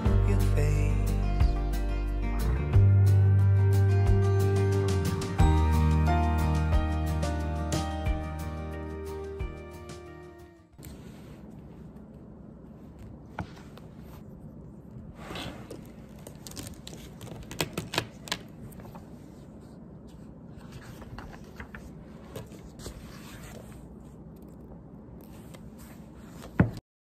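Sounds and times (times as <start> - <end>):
paper pages turning: 15.7 - 26.7.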